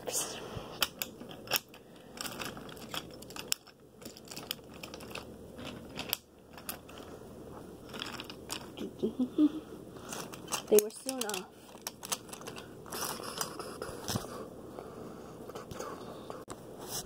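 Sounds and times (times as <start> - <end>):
handling noise clicks and rustling: 0.8 - 8.8, 10.0 - 14.3.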